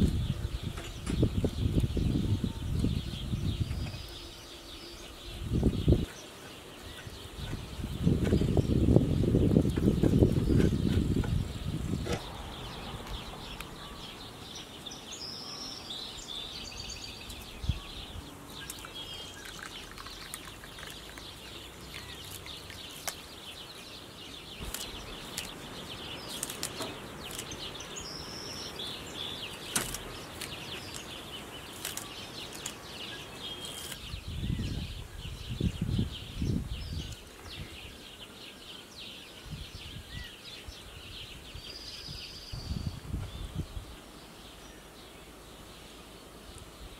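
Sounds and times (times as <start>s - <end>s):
bird chirps: 0.0s - 46.1s.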